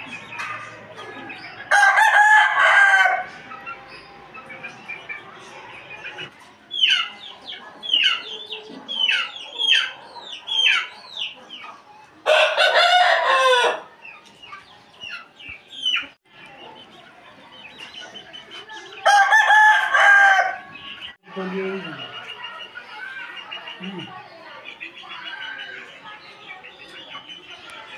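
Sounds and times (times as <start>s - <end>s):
rooster crowing: 1.7s - 3.3s, 12.3s - 13.9s, 19.0s - 20.7s.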